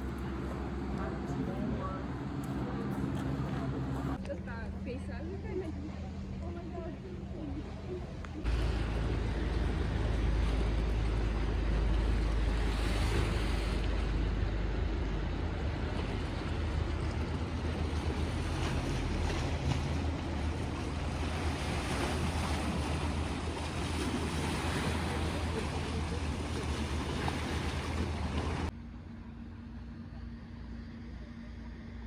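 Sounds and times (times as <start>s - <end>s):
small waves splashing on rocks: 16.8s - 28.7s.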